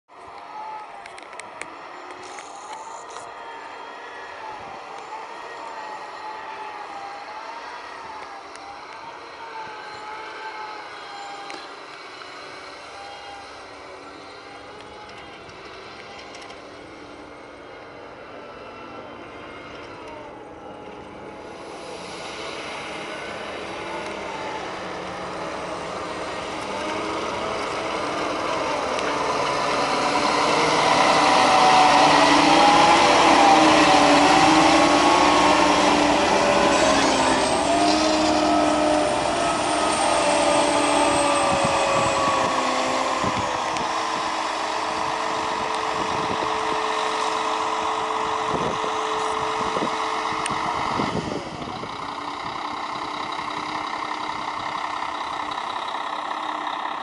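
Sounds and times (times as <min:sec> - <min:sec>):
snow groomer diesel engine: 0:00.1 - 0:57.0.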